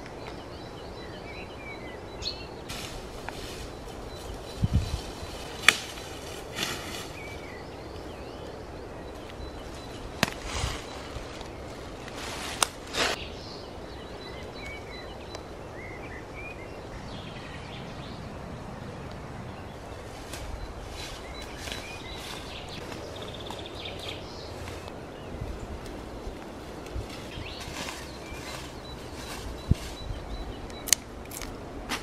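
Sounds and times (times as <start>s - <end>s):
faint birds chirping: 0.0s - 31.9s
rustling of greens and leaves: 2.6s - 8.2s, 9.1s - 13.4s, 19.9s - 32.0s.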